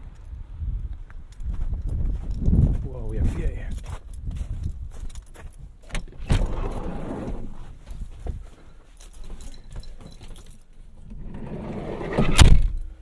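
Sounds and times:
keys jingling: 9.0 - 10.9.

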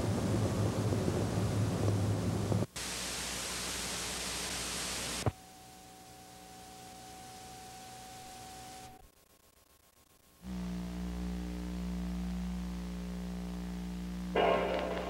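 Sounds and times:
videotape static hiss: 0.0 - 15.0
steady high tone: 14.4 - 15.0.

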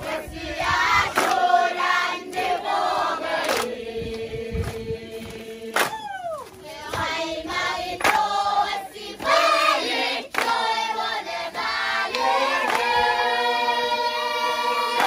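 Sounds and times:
group singing: 0.0 - 15.0
sharp claps: 1.1 - 1.5, 3.4 - 6.2, 8.0 - 8.4, 10.2 - 10.7, 12.1 - 13.0.

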